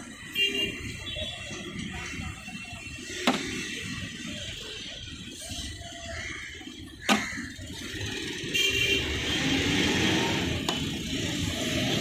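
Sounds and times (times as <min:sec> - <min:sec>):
street traffic noise: 0:00.0 - 0:12.0
motor vehicle passing: 0:07.7 - 0:12.0.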